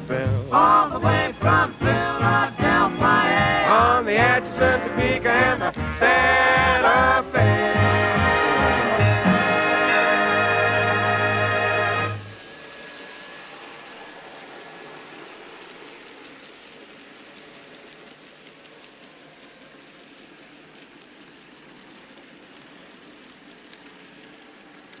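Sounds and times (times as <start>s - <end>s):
model train whirring: 0.0s - 25.0s
wheels clicking over rail joints: 12.9s - 25.0s.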